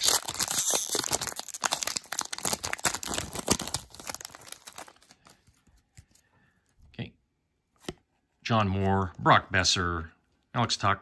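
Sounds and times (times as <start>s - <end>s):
foil wrapper crinkling and tearing: 0.0s - 5.4s.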